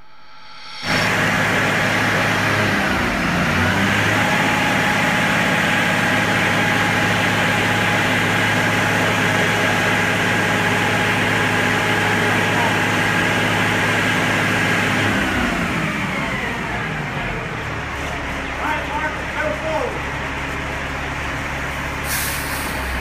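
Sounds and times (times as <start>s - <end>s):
thin steady whine: 0.0s - 3.9s
diesel engine idling: 1.7s - 15.5s, 16.1s - 23.0s.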